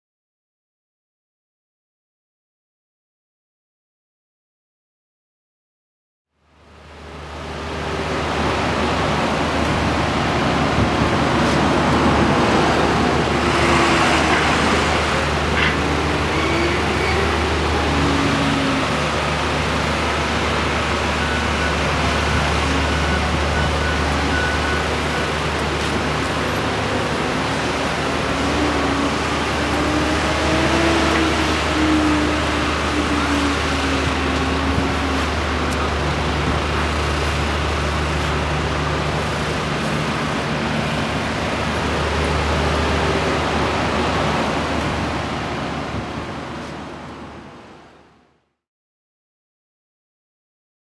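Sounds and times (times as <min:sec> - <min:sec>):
river rapids rushing: 0:06.8 - 0:47.8.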